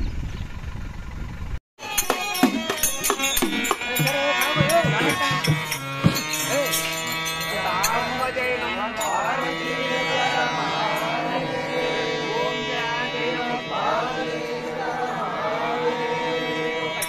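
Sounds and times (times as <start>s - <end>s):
ornamented gliding melody: 1.9s - 17.0s
steady drone: 4.8s - 17.0s.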